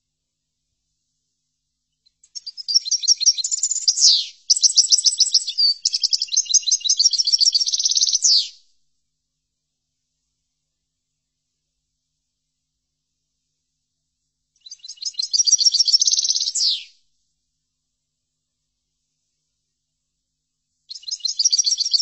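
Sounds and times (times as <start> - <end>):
goldfinch singing: 2.4 - 8.5, 14.6 - 16.9, 20.9 - 22.0.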